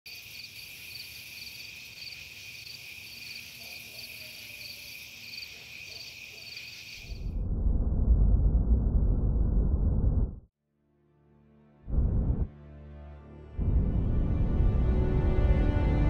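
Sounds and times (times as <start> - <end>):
crickets chirring: 0.1 - 7.2
loud low rumble: 7.3 - 10.5, 11.9 - 12.5.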